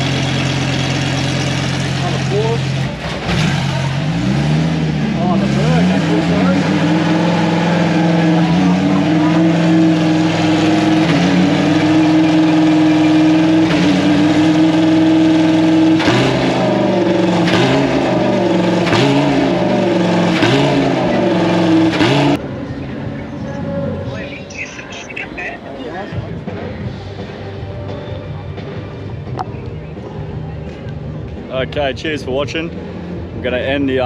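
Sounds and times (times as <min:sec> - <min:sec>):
race car engine revving: 0:00.0 - 0:24.3.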